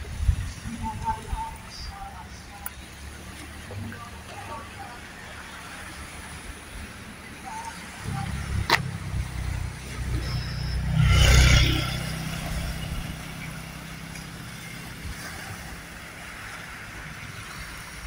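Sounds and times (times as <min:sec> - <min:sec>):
wind rumbling on microphone: 0:00.0 - 0:04.1
rush of noise: 0:05.2 - 0:18.0.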